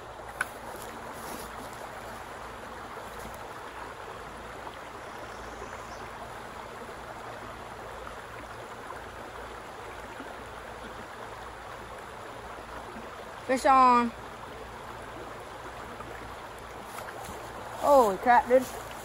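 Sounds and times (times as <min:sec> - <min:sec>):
creek water rushing over rocks: 0:00.0 - 0:19.0.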